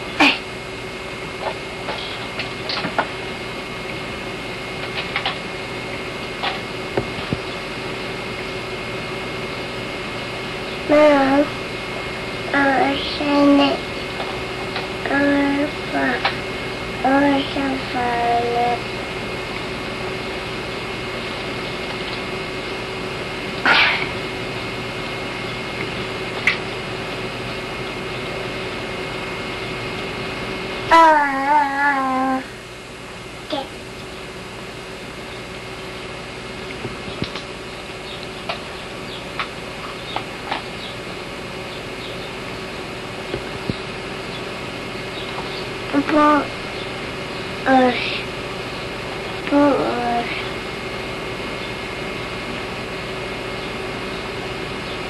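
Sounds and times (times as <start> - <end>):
camcorder hiss and hum: 0.0 - 55.0.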